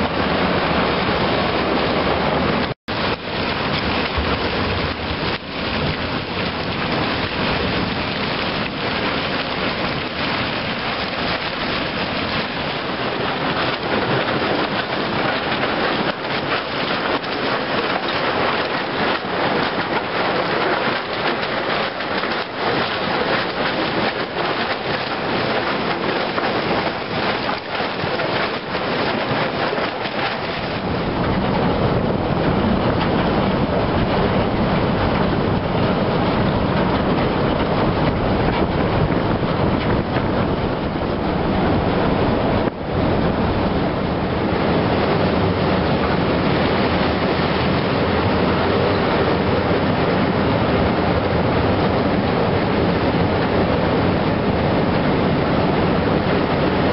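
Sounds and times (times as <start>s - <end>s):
low rumble: 30.5s - 52.6s.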